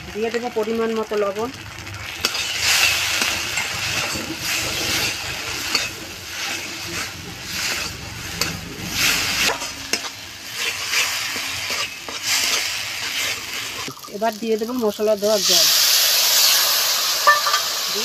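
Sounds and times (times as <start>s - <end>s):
paste sizzling in oil: 0.0s - 18.0s
spatula scraping paste in wok: 2.2s - 13.9s.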